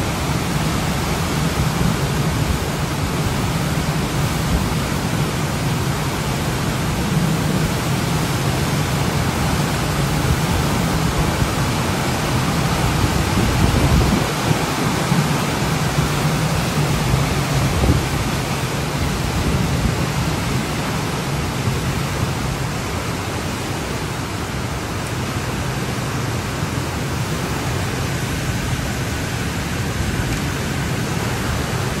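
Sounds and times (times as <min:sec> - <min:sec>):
rain: 0:00.0 - 0:32.0
wind buffeting microphone: 0:08.9 - 0:22.8.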